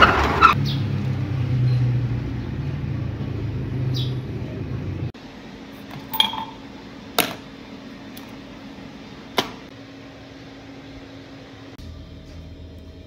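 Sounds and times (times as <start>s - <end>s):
steady low hum: 2.2s - 13.0s
glassy clink: 6.1s - 6.6s.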